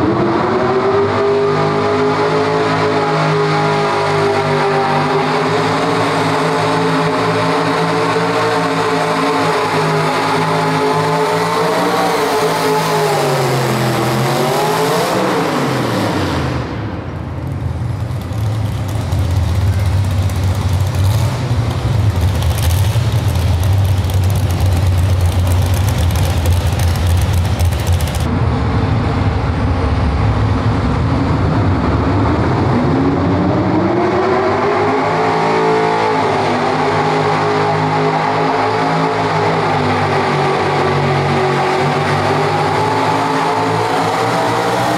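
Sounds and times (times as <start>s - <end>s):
truck engine revving high: 0.0s - 17.0s, 17.7s - 44.9s
second truck engine revving up: 0.0s - 44.9s
low engine drone: 15.6s - 34.9s.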